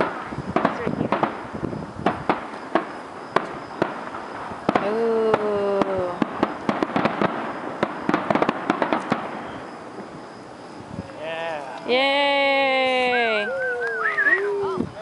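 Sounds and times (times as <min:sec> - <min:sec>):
fireworks bangs and pops: 0:00.0 - 0:11.2
fireworks crackling: 0:00.0 - 0:15.0.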